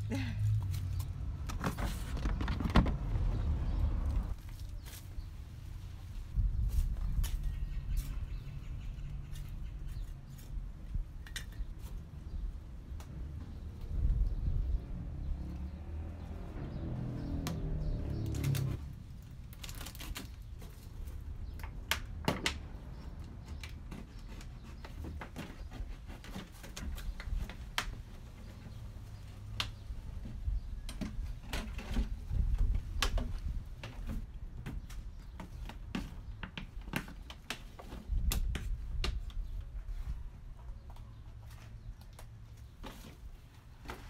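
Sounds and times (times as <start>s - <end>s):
low rumbles: 0.0s - 4.5s.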